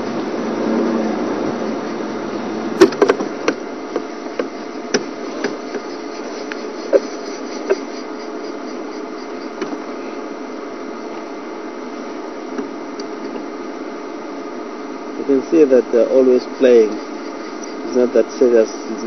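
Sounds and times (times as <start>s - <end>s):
vehicle engine idling: 0.0s - 19.0s
sharp knocks: 2.8s - 5.9s.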